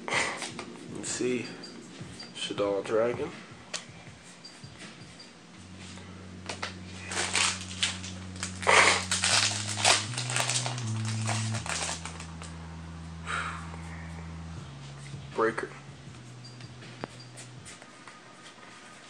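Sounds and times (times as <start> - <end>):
low steady tones: 0.0 - 19.0
cards rustling and slapping: 6.4 - 12.6.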